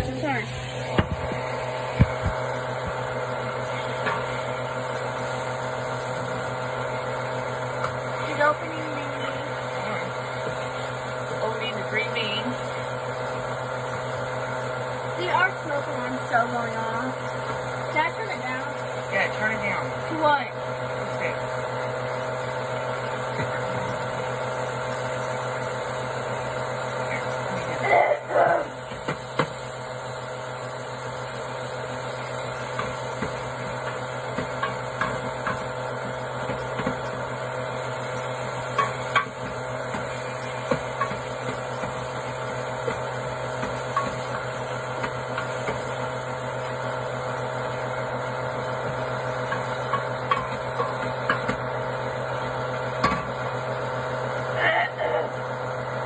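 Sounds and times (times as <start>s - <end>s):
steady mechanical hum: 0.0s - 56.0s.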